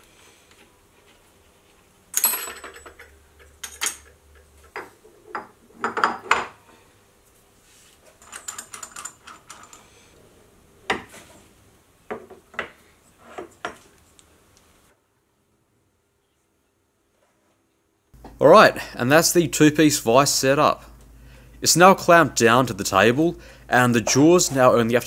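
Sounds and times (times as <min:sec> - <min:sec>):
metal parts clinking and knocking: 0:02.1 - 0:06.4, 0:08.2 - 0:09.9
hex key rattling in bolt: 0:08.2 - 0:09.8.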